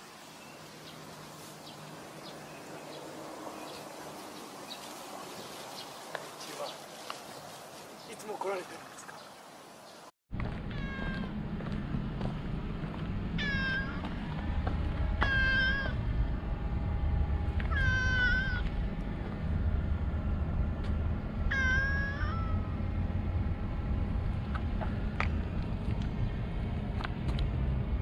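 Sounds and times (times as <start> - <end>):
low background rumble: 10.3 - 28.0
cat meowing: 10.7 - 11.4, 13.4 - 14.0, 15.2 - 16.0, 17.7 - 18.6, 21.5 - 22.7.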